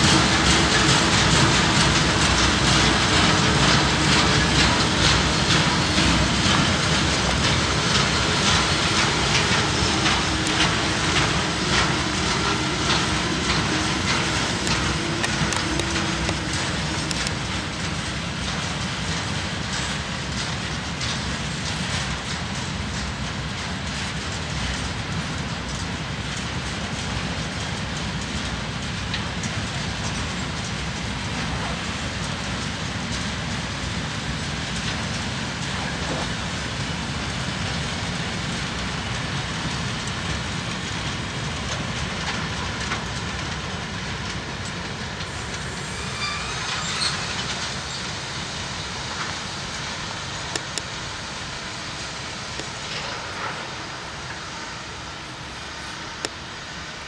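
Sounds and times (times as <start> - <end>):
freight train rolling past: 0.0 - 57.0
wheels clicking over rail joints: 0.0 - 57.0
high squeal of train wheels: 45.4 - 48.4.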